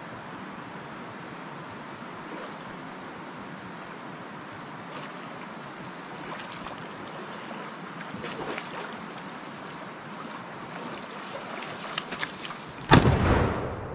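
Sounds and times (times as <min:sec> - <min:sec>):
water sloshing and splashing: 0:02.2 - 0:03.0, 0:04.8 - 0:13.0
loud rifle shot: 0:12.9 - 0:13.9.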